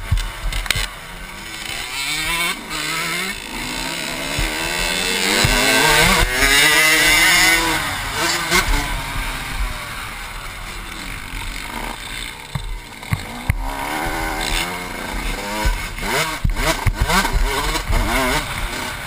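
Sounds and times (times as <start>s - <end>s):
dirt bike engine revving: 0.0s - 19.0s
sharp knocks: 4.3s - 6.8s, 12.5s - 13.7s.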